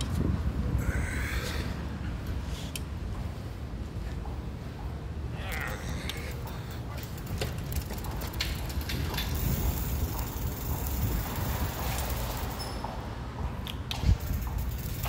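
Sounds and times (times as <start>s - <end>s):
bicycle rolling over tiles: 6.5s - 12.9s, 14.1s - 15.0s.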